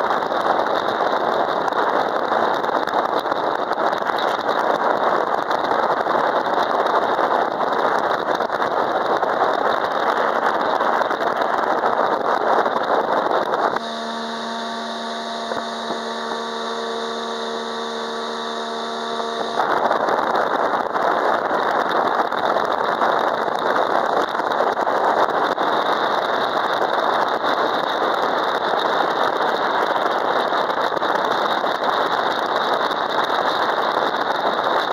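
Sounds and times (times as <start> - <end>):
boat engine drone: 13.5 - 21.7.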